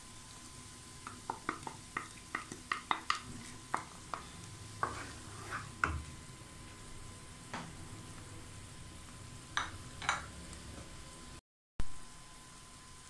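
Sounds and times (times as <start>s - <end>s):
faint sizzle: 0.0s - 13.0s
wooden spoon tapping on pan: 1.0s - 5.0s, 9.6s - 10.3s.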